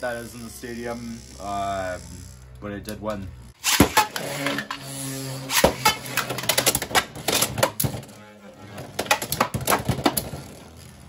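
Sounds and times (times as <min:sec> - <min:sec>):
spinning tops clashing: 0:03.6 - 0:04.8.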